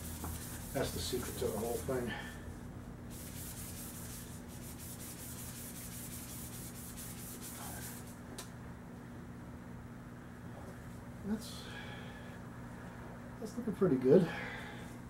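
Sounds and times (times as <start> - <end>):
abrasive pad scrubbing metal: 0.0 - 2.1
steady low hum: 0.0 - 15.0.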